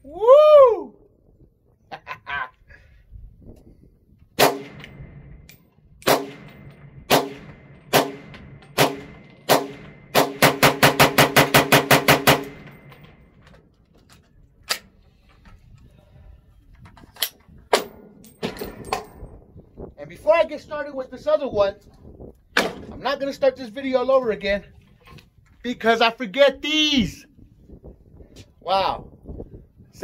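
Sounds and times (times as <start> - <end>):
rifle shots: 4.4 - 5.3, 6.0 - 13.2.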